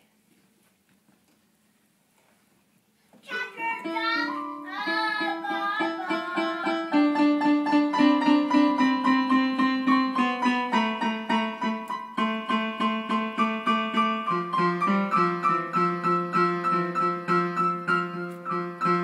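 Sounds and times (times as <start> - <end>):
piano keyboard notes: 3.3 - 19.0.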